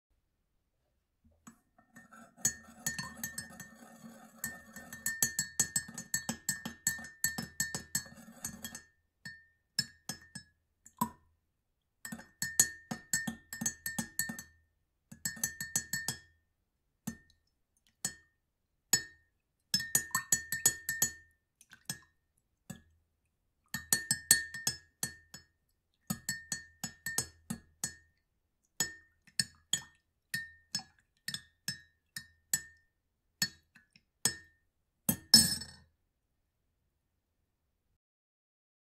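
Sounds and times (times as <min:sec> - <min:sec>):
spoon clinking against glass: 0:02.0 - 0:10.5, 0:15.2 - 0:16.3, 0:19.8 - 0:21.2, 0:35.2 - 0:35.8.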